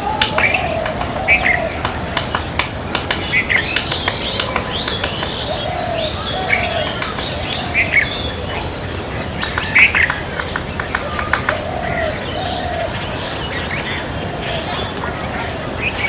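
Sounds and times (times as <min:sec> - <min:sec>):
birds chirping: 0:00.0 - 0:16.0
low bird calls: 0:00.0 - 0:16.0
woodpecker tapping tree trunk: 0:00.1 - 0:08.1, 0:09.4 - 0:11.7.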